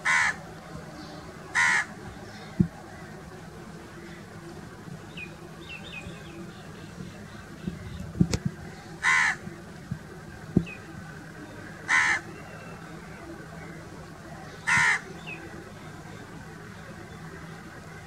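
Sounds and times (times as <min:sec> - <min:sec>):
crow cawing: 0:00.0 - 0:00.4, 0:01.6 - 0:01.9, 0:09.0 - 0:09.4, 0:11.9 - 0:12.3, 0:14.7 - 0:15.0.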